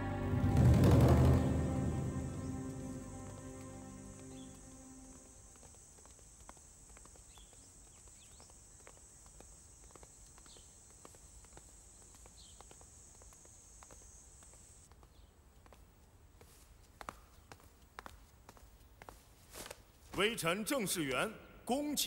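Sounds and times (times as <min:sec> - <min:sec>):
faint high hiss: 0:00.0 - 0:07.6
faint footsteps: 0:00.0 - 0:20.5
bird chirps: 0:01.0 - 0:05.3.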